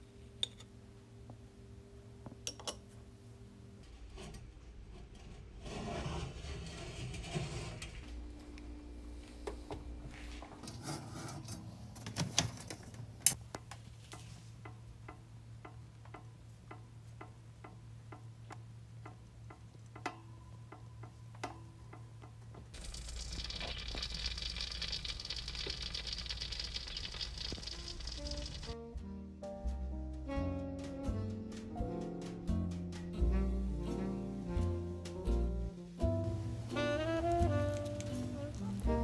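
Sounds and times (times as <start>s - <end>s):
regular ticking: 22.8s - 28.8s
steady hiss: 22.8s - 28.8s.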